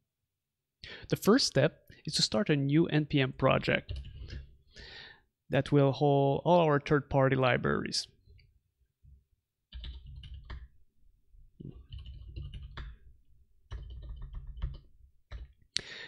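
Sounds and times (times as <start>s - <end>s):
typing on keyboard: 3.9s - 4.5s, 9.7s - 10.7s, 11.6s - 13.0s, 13.6s - 15.6s.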